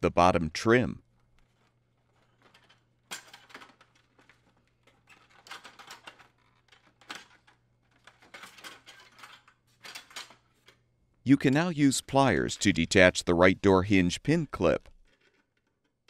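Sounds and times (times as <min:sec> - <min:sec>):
plastic door parts clicking: 0:01.4 - 0:10.8.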